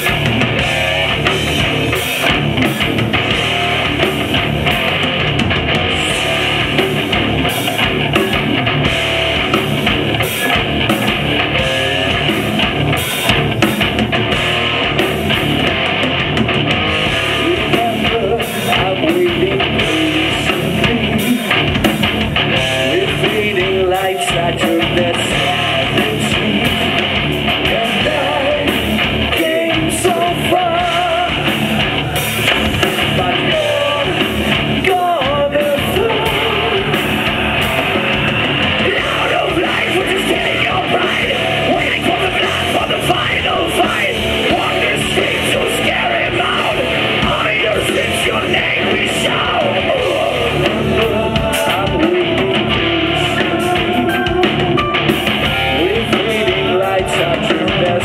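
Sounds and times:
distorted electric guitars: 0:00.0 - 0:58.0
drum kit: 0:00.0 - 0:58.0
person singing and yelling: 0:17.0 - 0:21.8, 0:22.5 - 0:58.0.

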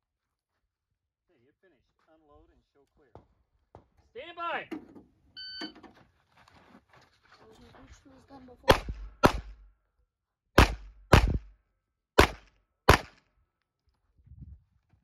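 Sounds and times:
handgun shots: 0:08.7 - 0:09.7, 0:10.6 - 0:11.5, 0:12.2 - 0:13.3.

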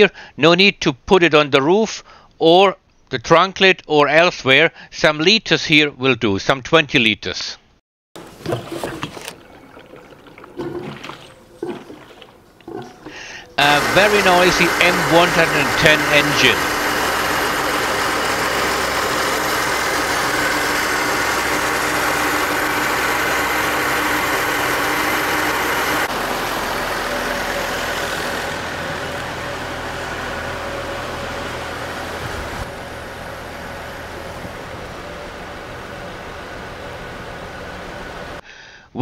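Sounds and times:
car engine idling: 0:11.4 - 0:38.4.

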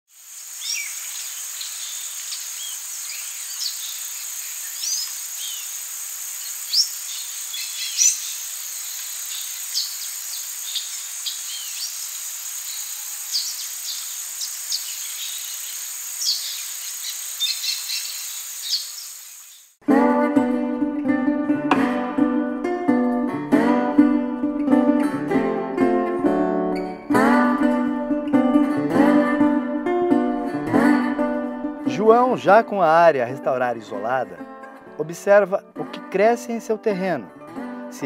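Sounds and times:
high insect drone: 0:00.1 - 0:19.8
bird chirps and calls: 0:00.6 - 0:19.7.

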